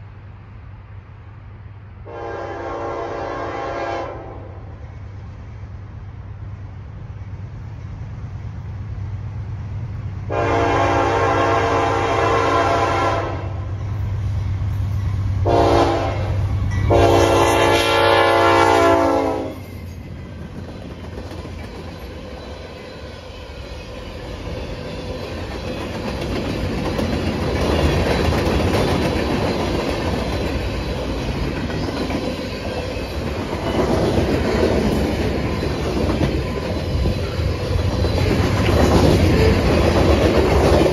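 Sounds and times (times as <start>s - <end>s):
locomotive horn blasts: 2.0s - 4.7s, 10.3s - 13.7s, 15.4s - 19.7s
locomotive engine drone: 4.5s - 40.9s.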